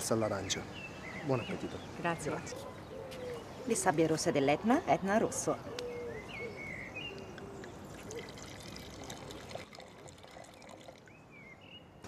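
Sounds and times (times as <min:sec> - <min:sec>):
wine pouring into glass: 0:08.0 - 0:11.2.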